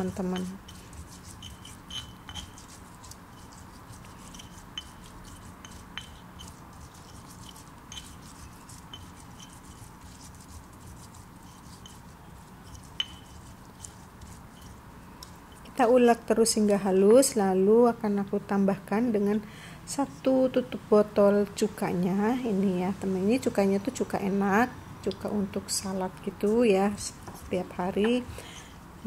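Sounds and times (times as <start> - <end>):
pestle crushing in mortar: 0.0 - 12.1.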